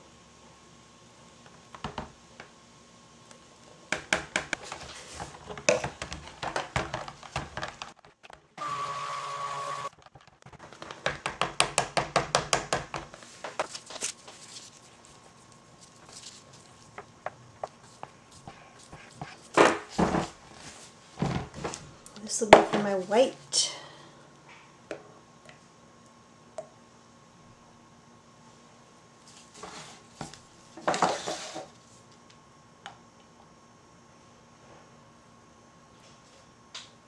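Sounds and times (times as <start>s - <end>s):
immersion blender motor running: 8.6s - 9.9s.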